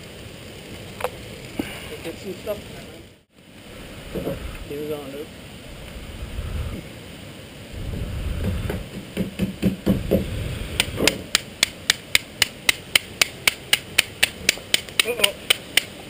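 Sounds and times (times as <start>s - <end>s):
low rush of air: 0.0s - 9.2s, 9.8s - 14.6s
irregular knocks: 8.4s - 10.3s
fast sharp clicks: 10.8s - 16.0s.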